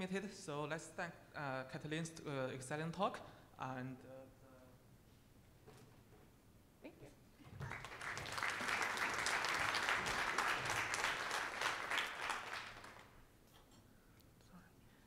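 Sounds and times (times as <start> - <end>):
audience applauding: 7.5 - 13.2.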